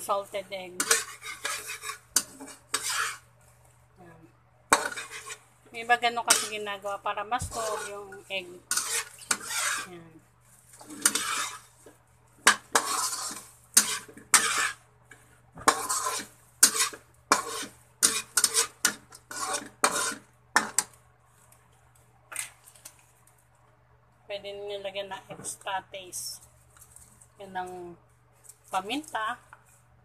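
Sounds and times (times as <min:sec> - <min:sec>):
metal spatula scraping a wok: 0:00.0 - 0:03.4, 0:04.7 - 0:21.0.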